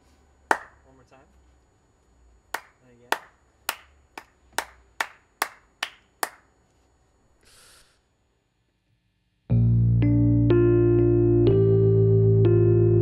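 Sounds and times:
man clapping hands: 0:00.5 - 0:00.8, 0:02.5 - 0:06.5
keyboard chords: 0:09.5 - 0:13.0.

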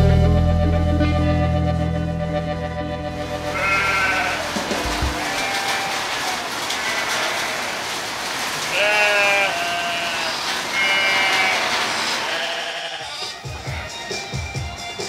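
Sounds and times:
rain falling on street: 0:03.3 - 0:12.7.

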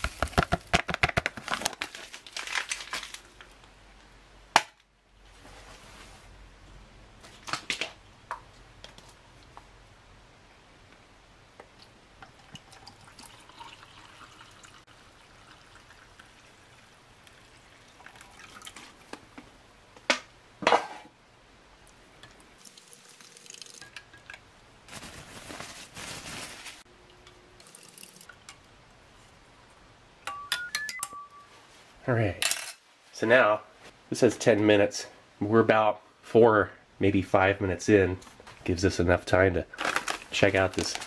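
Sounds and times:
water pouring into glass: 0:12.3 - 0:18.8, 0:22.6 - 0:24.0.

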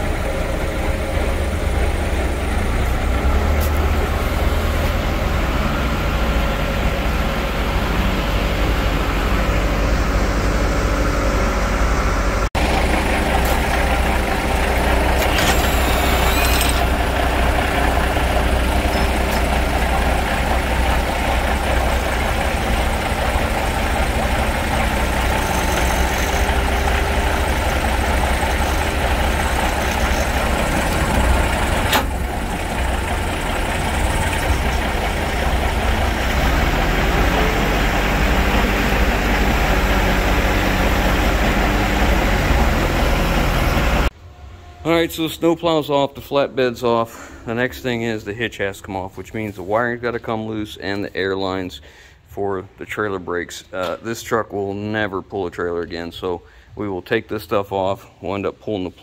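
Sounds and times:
diesel engine idling: 0:00.0 - 0:44.2
sharp metallic clank: 0:15.2 - 0:16.9.

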